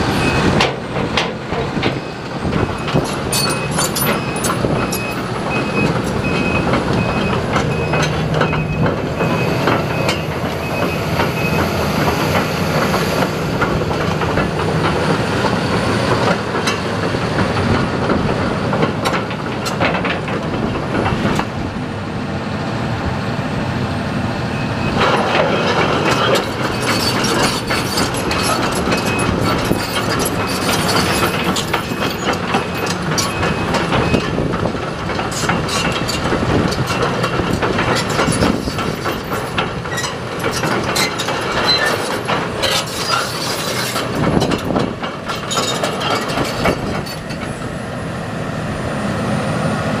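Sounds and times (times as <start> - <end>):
diesel engine running: 0.0 - 50.0
steel tracks clanking: 0.0 - 50.0.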